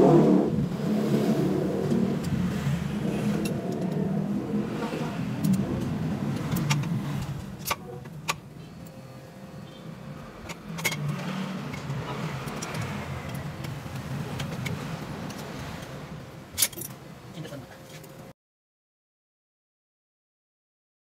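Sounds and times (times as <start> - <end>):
low rumble: 0.0 - 9.4
screwdriver clinking on metal: 16.6 - 17.0.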